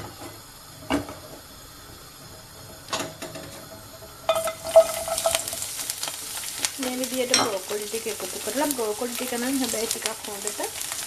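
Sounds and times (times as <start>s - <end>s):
food sizzling in hot oil: 0.0s - 11.0s
pieces clattering in pan: 2.9s - 11.0s.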